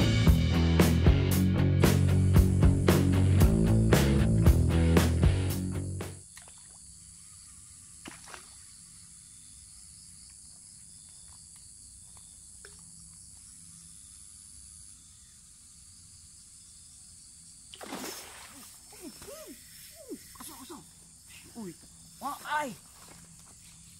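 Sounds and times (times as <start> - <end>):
guitar intro music: 0.0 - 6.2
faint outdoor ambience: 5.5 - 23.9
high-pitched hiss: 13.4 - 23.9.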